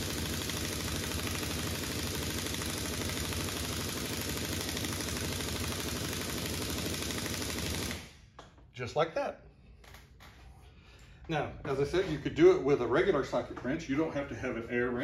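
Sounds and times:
impact wrench hammering: 0.0s - 8.6s.

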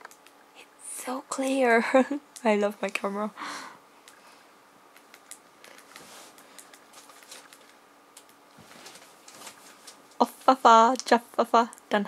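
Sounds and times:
laptop keyboard typing: 0.0s - 0.4s, 4.9s - 8.4s
faint electrical hum: 0.0s - 12.0s.

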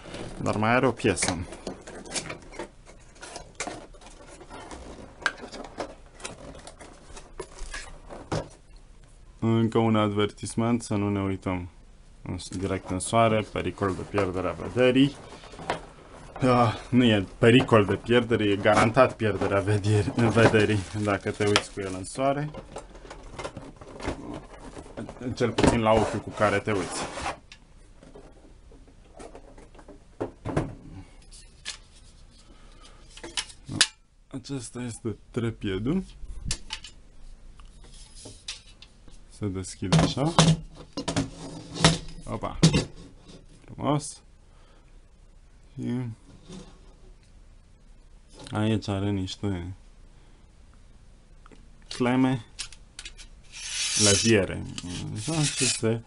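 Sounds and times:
cardboard rustling and scraping: 0.0s - 8.6s, 12.6s - 28.5s, 53.1s - 56.0s.

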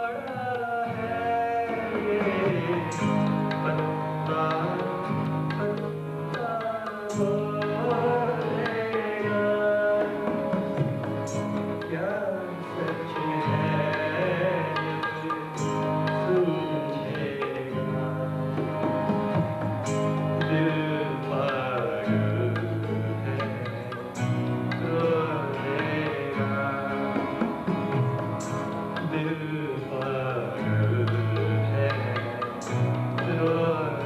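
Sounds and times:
man singing: 0.0s - 34.0s
sustained pitched accompaniment: 1.4s - 34.0s
barrel drum rhythm: 9.9s - 12.0s, 18.4s - 20.6s, 23.7s - 29.2s.

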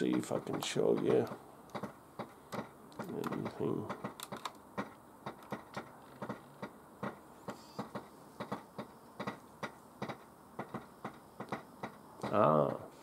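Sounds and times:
camcorder control clicks: 4.0s - 4.6s.

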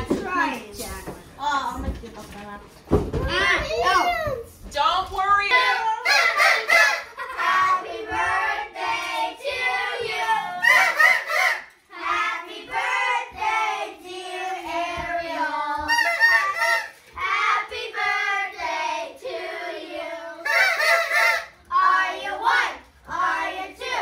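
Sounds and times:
children singing: 6.4s - 24.0s.

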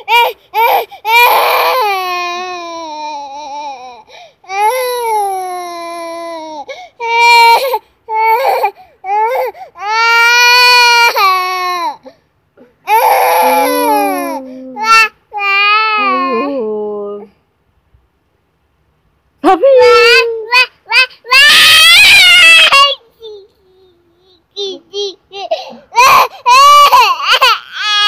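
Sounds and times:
young child crying loudly: 0.0s - 12.1s, 12.8s - 16.5s, 19.8s - 23.2s, 25.4s - 28.0s.

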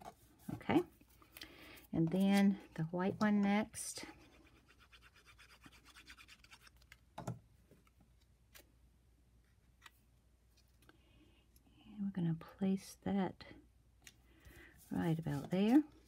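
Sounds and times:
sponge scratching on paper: 4.1s - 6.7s.

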